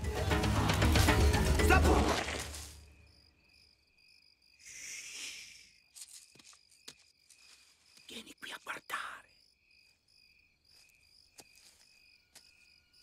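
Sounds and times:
brush rustling: 0:00.5 - 0:02.9, 0:06.0 - 0:08.1
crickets chirping: 0:01.1 - 0:13.0.

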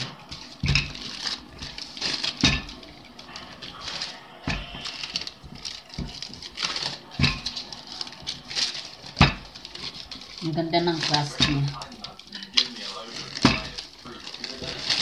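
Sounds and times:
rolling pin rolling dough: 0:00.0 - 0:15.0
sheet rustling and crinkling: 0:00.0 - 0:15.0.

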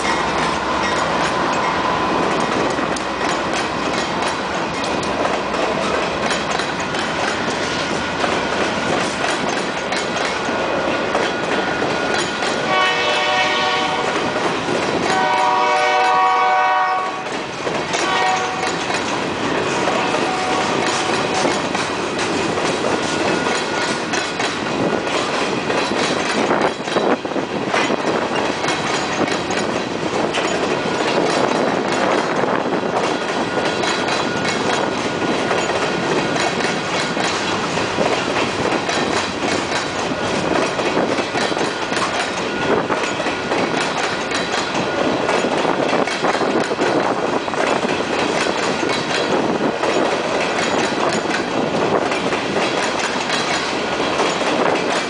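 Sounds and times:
freight train rumbling past: 0:00.0 - 0:55.0
wheels clattering over rail joints: 0:00.0 - 0:55.0
locomotive horn blast: 0:12.6 - 0:14.3, 0:15.1 - 0:17.4, 0:18.0 - 0:18.8, 0:19.9 - 0:21.4.

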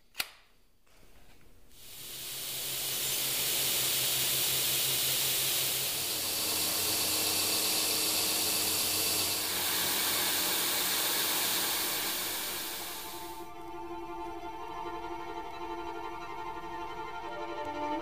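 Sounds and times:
belt grinder grinding steel: 0:02.5 - 0:13.4.

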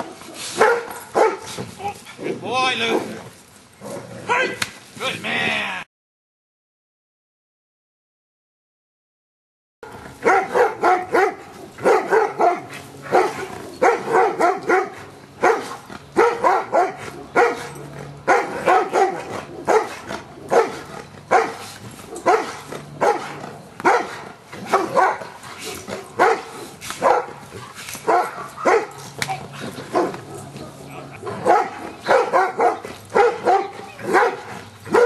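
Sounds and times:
dog barking: 0:00.0 - 0:01.5, 0:09.8 - 0:21.6, 0:22.2 - 0:27.4, 0:28.0 - 0:29.0, 0:29.9 - 0:35.0.

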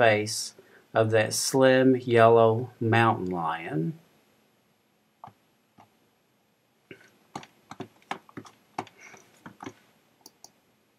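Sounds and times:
computer keys clicking: 0:07.3 - 0:10.6.

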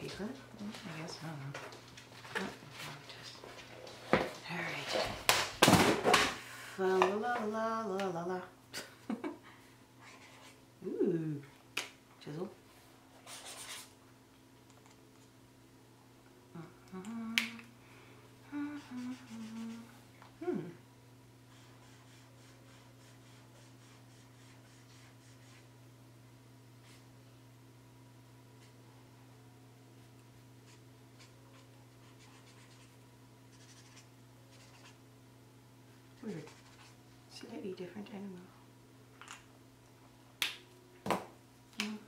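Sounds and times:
low steady hum: 0:00.0 - 0:42.0
woman humming: 0:10.8 - 0:11.6, 0:16.5 - 0:17.8, 0:18.4 - 0:20.9, 0:41.8 - 0:42.0
marker scratching on paper: 0:13.3 - 0:13.9, 0:21.5 - 0:25.7, 0:33.5 - 0:35.0, 0:36.4 - 0:37.0.

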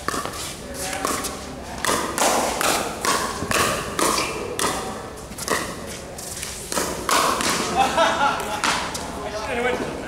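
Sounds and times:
paddles hitting plastic ball: 0:00.0 - 0:05.8, 0:06.7 - 0:07.7.

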